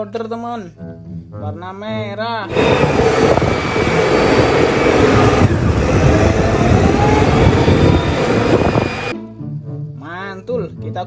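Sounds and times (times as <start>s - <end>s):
diesel engine running: 2.5s - 9.2s
faint high whine: 2.5s - 9.2s.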